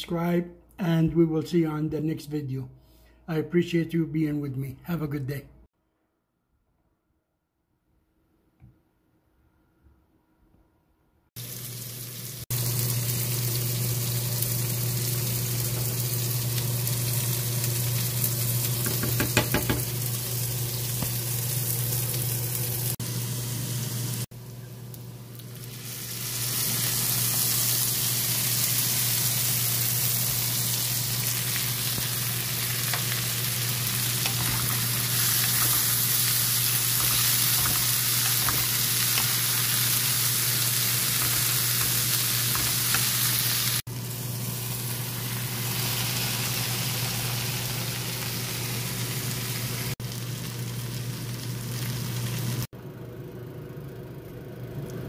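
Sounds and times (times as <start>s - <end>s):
vegetables sizzling in oil: 11.4s - 52.7s.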